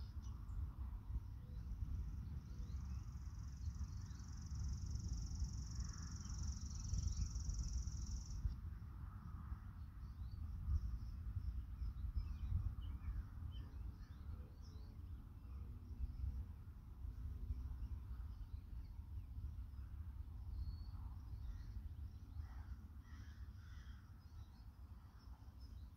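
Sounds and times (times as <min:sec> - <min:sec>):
faint bird chirps: 0:00.0 - 0:08.6
wind rumbling on microphone: 0:00.0 - 0:22.6
high insect trill: 0:03.0 - 0:08.4.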